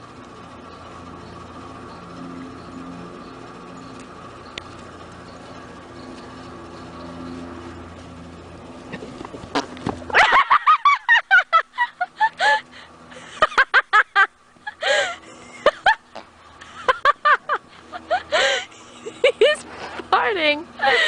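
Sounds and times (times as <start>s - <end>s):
horse farting: 8.9s - 10.0s.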